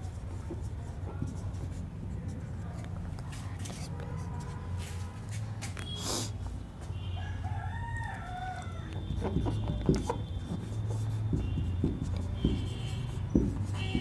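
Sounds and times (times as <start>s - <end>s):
marker writing on whiteboard: 0.0s - 6.0s, 8.4s - 14.0s
rooster crowing: 7.1s - 9.3s.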